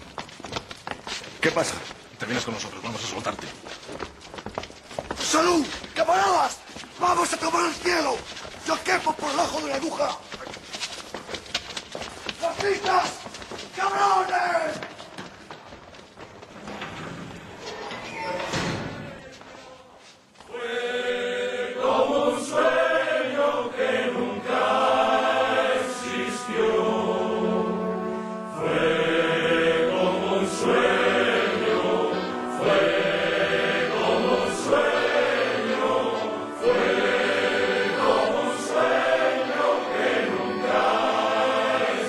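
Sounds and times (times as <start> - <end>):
men's choir singing: 18.9 - 42.0.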